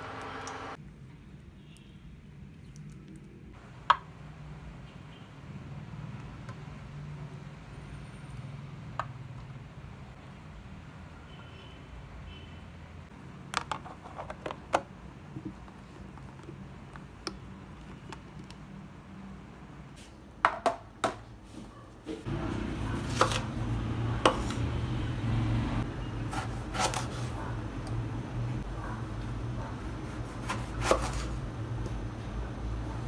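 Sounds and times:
knife cutting on wooden board: 26.3s - 27.3s, 30.1s - 31.4s.

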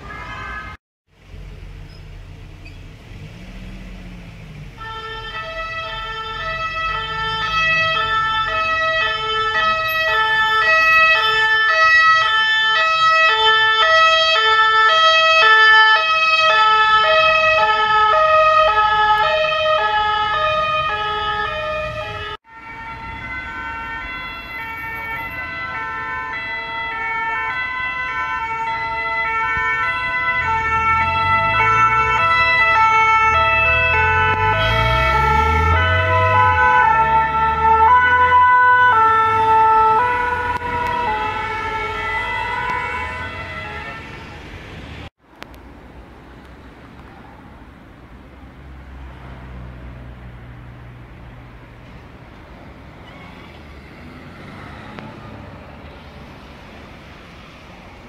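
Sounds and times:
vehicle engine rumble: 1.1s - 11.5s, 16.6s - 58.0s
two-tone emergency siren: 4.8s - 44.5s.

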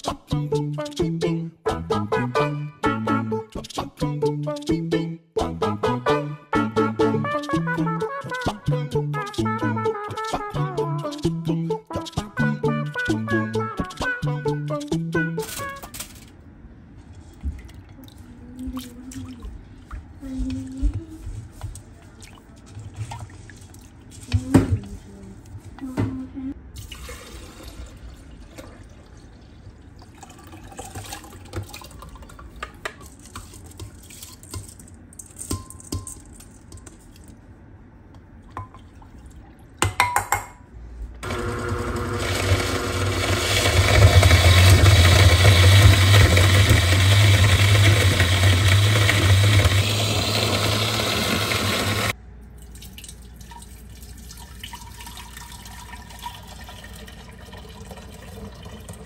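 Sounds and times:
liquid sloshing: 22.0s - 25.0s, 26.8s - 35.4s
liquid pouring through a strainer: 26.8s - 34.8s, 52.6s - 59.0s
clinks in a bowl: 34.3s - 37.0s
blender motor hum: 41.2s - 52.1s.

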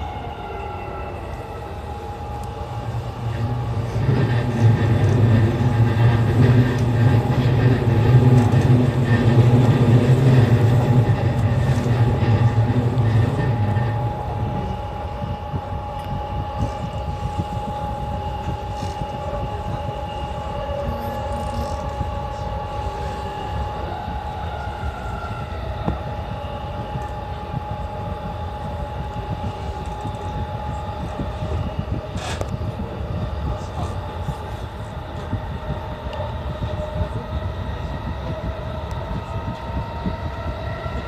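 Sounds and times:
steady high tone: 0.0s - 32.0s
train wheels rumbling on rail: 0.0s - 41.0s.

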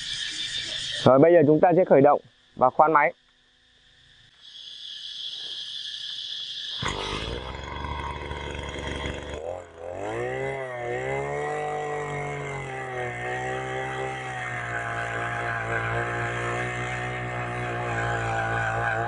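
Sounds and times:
earth auger engine running: 6.8s - 19.0s.

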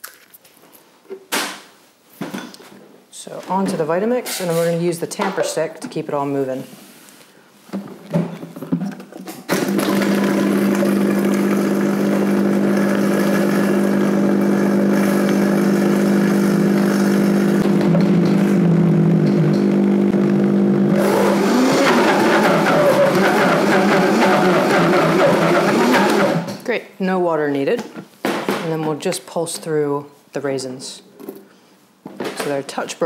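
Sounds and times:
blender motor running: 9.5s - 26.6s.

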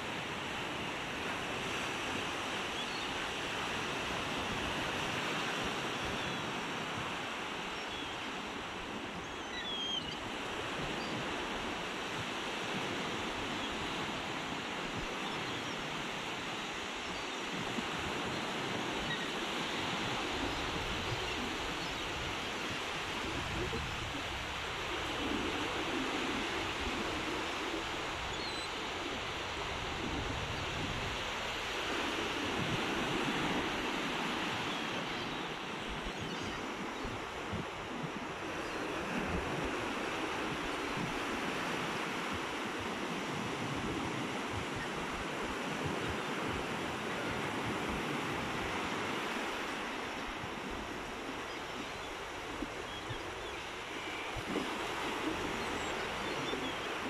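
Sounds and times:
waves breaking on sandy beach: 0.0s - 57.0s
wind buffeting microphone: 19.9s - 25.0s.

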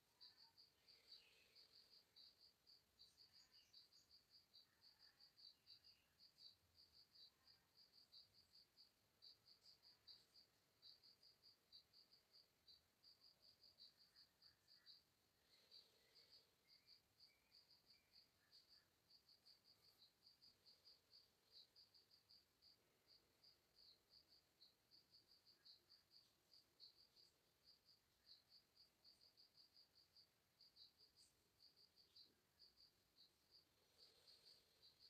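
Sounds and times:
cricket chirping: 0.0s - 35.0s.

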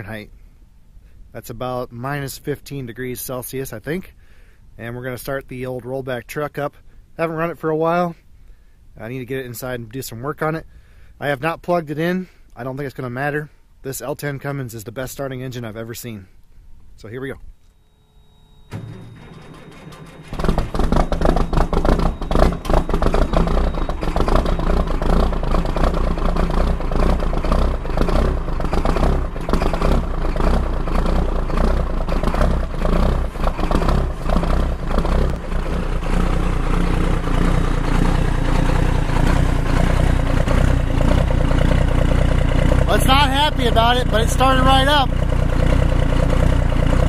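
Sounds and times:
diesel truck engine starting: 18.6s - 47.0s.

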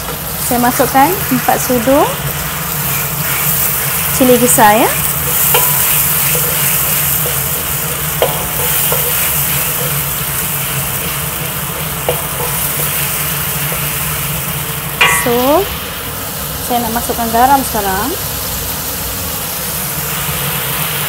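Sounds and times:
paste sizzling in hot oil: 0.0s - 21.0s
wooden spatula scraping wok: 2.7s - 15.0s
spatula knocking against wok: 5.1s - 10.3s, 10.9s - 13.9s, 15.0s - 15.8s.

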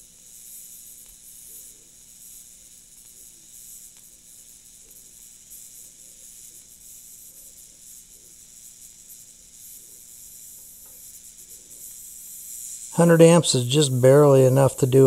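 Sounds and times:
welding arc hissing: 0.2s - 15.0s
faint low hum: 13.0s - 15.0s.

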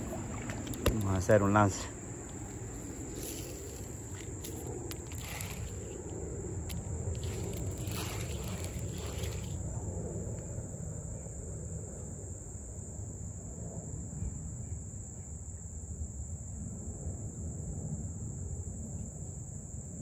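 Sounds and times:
insects buzzing: 0.0s - 14.7s.

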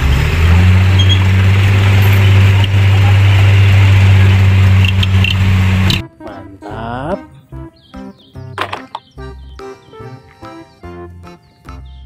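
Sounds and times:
diesel engine running: 0.0s - 6.0s.

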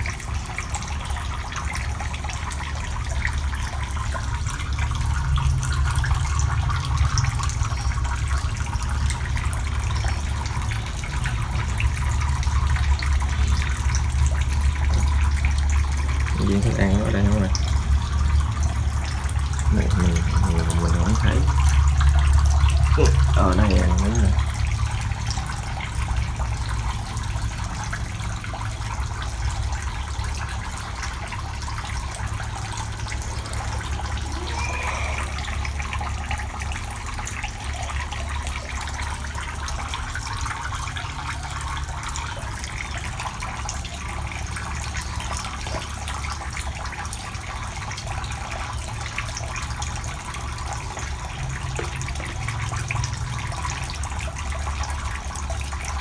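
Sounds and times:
low steady hum: 0.0s - 56.0s
water splashing into tank: 0.0s - 56.0s.

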